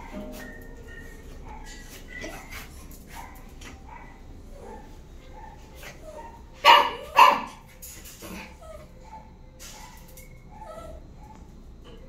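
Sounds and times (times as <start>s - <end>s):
dog barking: 1.4s - 7.6s, 9.0s - 10.1s.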